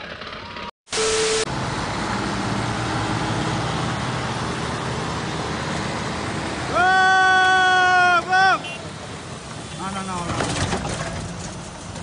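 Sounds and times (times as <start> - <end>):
tractor engines rumbling: 0.0 - 12.0
loud high steady tone: 0.9 - 2.0.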